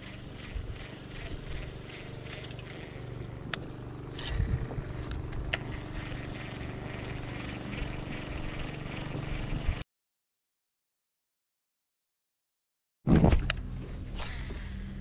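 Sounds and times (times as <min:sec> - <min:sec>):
fishing reel clicks: 0:00.0 - 0:09.8
small motor humming: 0:00.0 - 0:09.8, 0:13.4 - 0:15.0.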